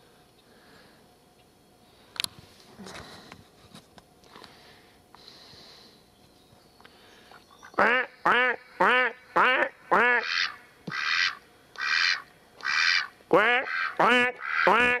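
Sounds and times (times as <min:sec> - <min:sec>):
duck quacking: 0:07.7 - 0:15.0.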